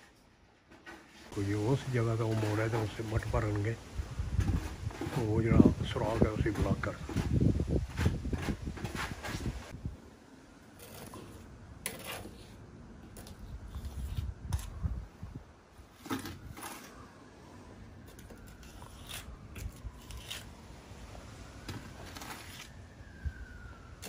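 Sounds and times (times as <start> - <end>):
trowel scraping and tapping: 10.8 - 12.6.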